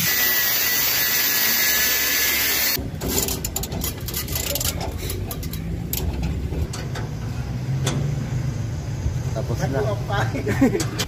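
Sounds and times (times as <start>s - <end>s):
angle grinder cutting cable: 0.0s - 2.8s.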